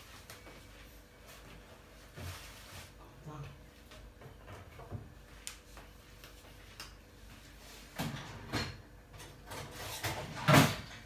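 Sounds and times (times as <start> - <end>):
kitchen things knocking and scraping: 8.0 - 11.0.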